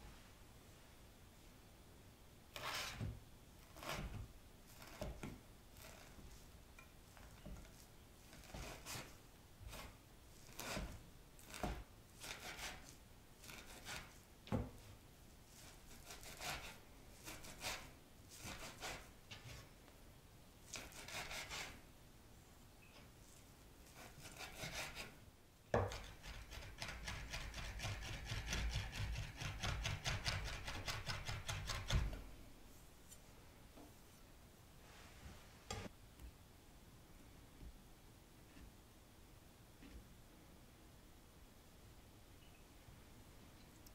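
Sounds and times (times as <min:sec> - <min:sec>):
knife chopping on wooden board: 0:25.8 - 0:26.2.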